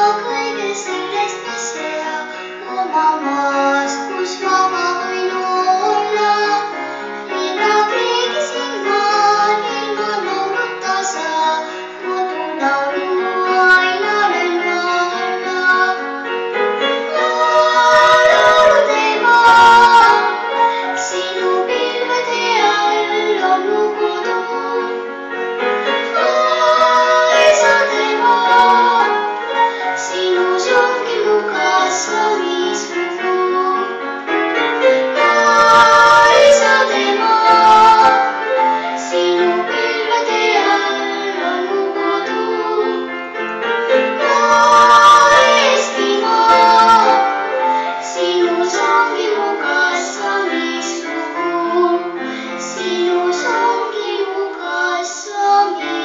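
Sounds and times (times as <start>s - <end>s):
girl singing into microphone: 0.0s - 16.0s, 17.1s - 25.0s, 30.0s - 34.0s, 35.2s - 43.1s, 48.0s - 56.0s
piano accompaniment: 0.0s - 56.0s.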